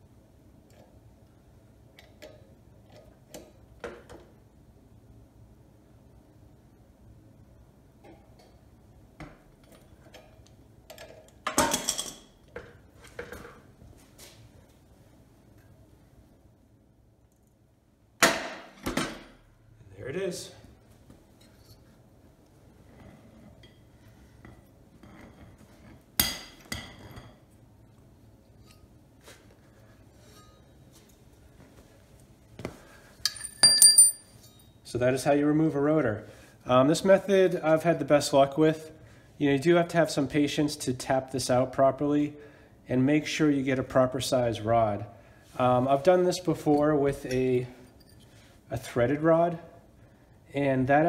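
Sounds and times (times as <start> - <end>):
metal tools clinking: 33.2 - 34.8, 46.6 - 48.4.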